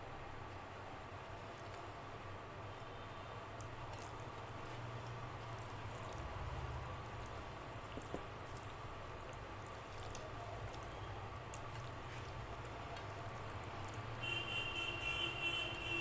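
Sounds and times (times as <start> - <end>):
hand mashing food wet squishing: 3.6 - 14.4.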